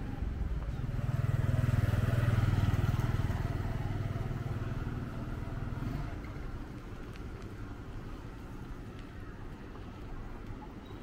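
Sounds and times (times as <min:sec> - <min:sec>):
motorcycle passing by: 0:00.7 - 0:06.4.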